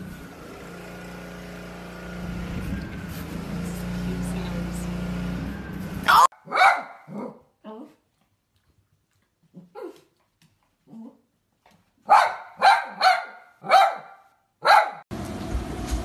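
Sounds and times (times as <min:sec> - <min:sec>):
small dog barking: 0:06.0 - 0:07.5, 0:12.0 - 0:15.0.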